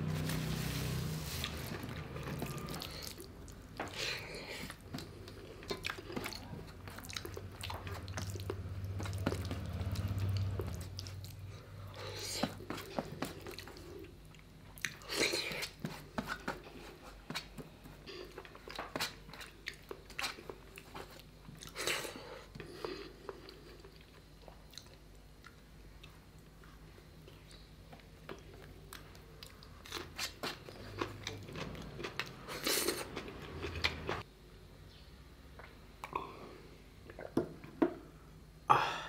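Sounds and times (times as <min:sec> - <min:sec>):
wet chewing and mouth clicks: 0:02.6 - 0:11.4, 0:12.1 - 0:17.6, 0:18.2 - 0:26.7, 0:27.3 - 0:34.2.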